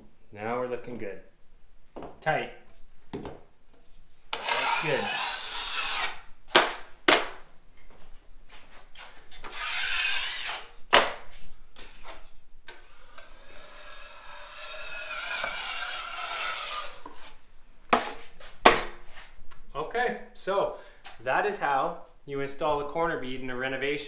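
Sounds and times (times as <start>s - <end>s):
drywall knife scraping compound: 4.3s - 7.3s, 9.0s - 19.3s.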